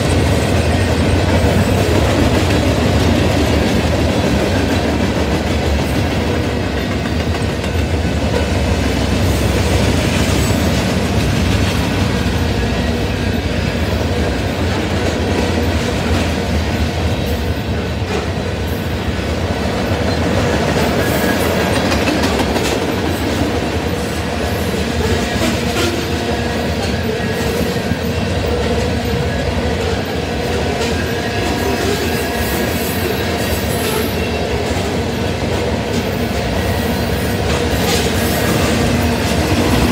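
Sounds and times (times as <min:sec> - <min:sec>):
wheels clacking over rail joints: 0:00.0 - 0:17.0, 0:19.6 - 0:39.9
freight train wheels rumbling: 0:00.0 - 0:39.9.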